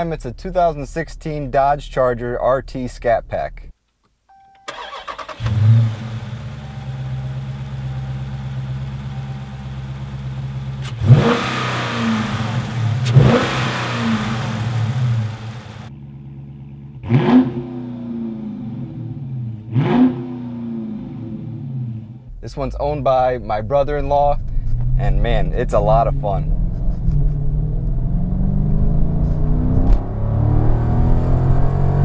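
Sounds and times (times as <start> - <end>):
car engine starting: 4.3 - 32.0
car engine idling: 4.7 - 17.2
engine revving: 4.7 - 22.3, 24.6 - 32.0.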